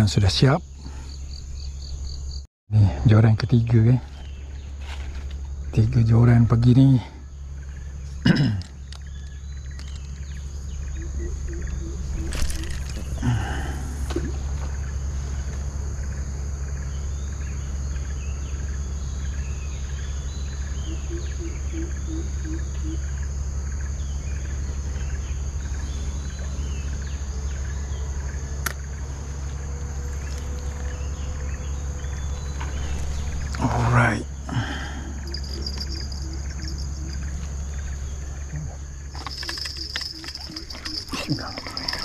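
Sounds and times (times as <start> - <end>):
insect drone: 0.0 - 42.0
steady low rumble: 30.9 - 39.1.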